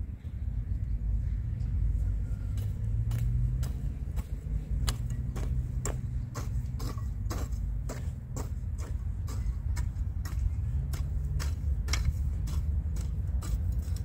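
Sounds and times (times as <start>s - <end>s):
hoe chopping dry soil: 2.4s - 14.0s.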